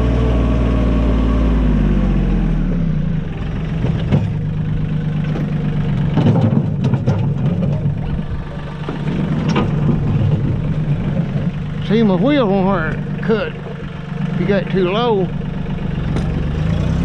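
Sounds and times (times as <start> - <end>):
tractor engine running: 0.0 - 17.0
knocks and scrapes: 5.3 - 11.6.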